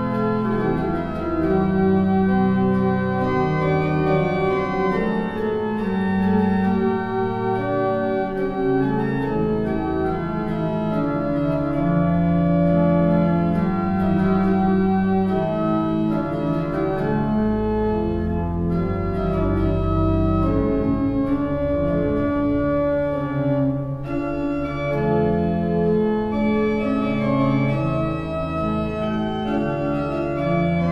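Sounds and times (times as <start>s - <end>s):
organ chords: 0.0s - 30.9s
deep bass organ note: 17.4s - 29.2s.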